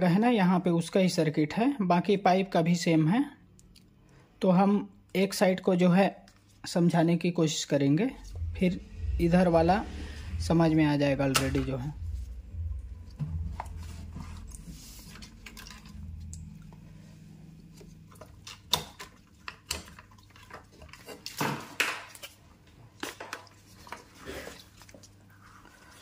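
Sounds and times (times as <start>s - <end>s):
faint low hum: 8.0s - 20.0s.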